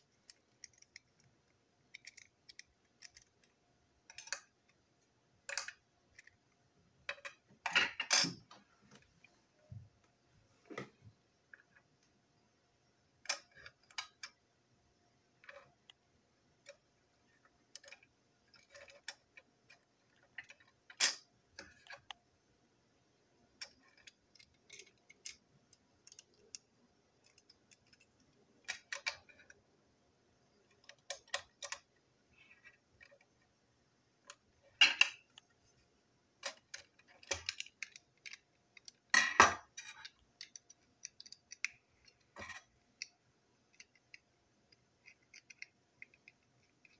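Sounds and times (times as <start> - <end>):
plastic toy parts clicking: 0.2 - 4.8, 5.5 - 6.4, 7.1 - 7.4, 13.2 - 14.4, 17.7 - 22.2, 23.6 - 29.6, 30.7 - 33.3, 36.4 - 46.9.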